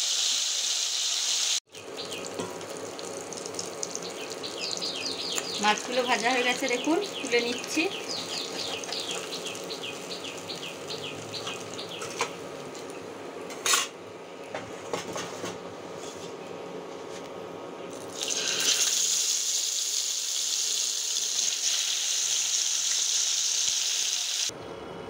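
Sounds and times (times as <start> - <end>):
fish sizzling in hot oil: 0.0 - 12.2, 18.1 - 24.5.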